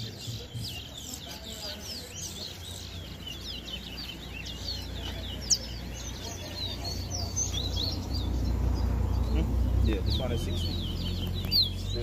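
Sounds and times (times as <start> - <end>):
songbird singing: 0.0 - 12.0.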